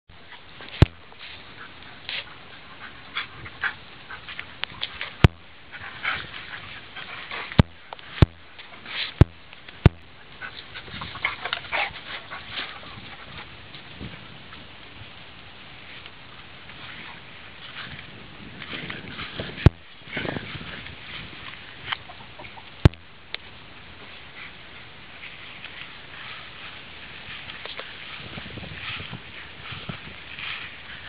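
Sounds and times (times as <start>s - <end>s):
sharp clicks: 4.6s - 5.5s, 7.5s - 8.6s, 9.2s - 10.2s, 22.8s - 23.4s.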